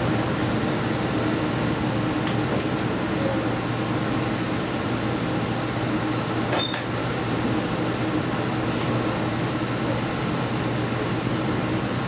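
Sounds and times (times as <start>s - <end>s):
train engine and track hum: 0.0s - 12.0s.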